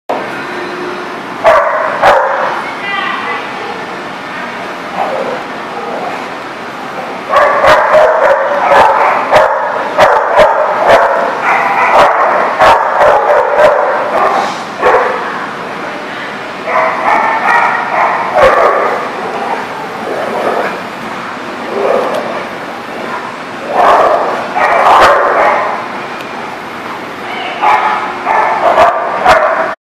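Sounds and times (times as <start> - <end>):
dogs barking and yipping: 1.4 - 2.6, 7.3 - 15.3, 16.7 - 20.9, 21.7 - 25.9, 27.6 - 29.8.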